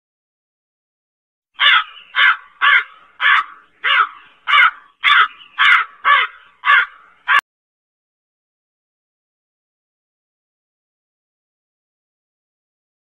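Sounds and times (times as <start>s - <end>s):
crow cawing: 1.6s - 7.4s.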